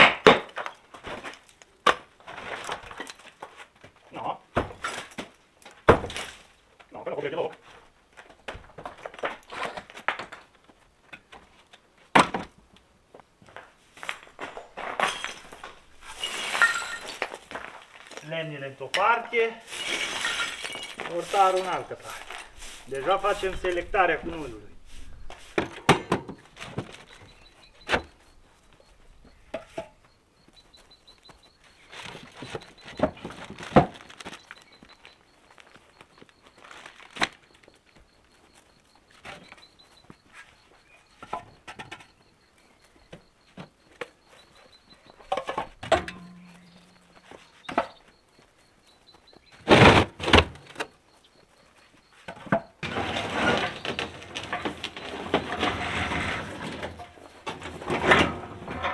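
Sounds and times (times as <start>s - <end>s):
bricks being set down: 13.5s - 18.2s, 19.0s - 24.0s
broom sweeping rubble: 14.0s - 18.5s, 19.3s - 25.8s
cement mixer being shifted: 52.3s - 58.9s.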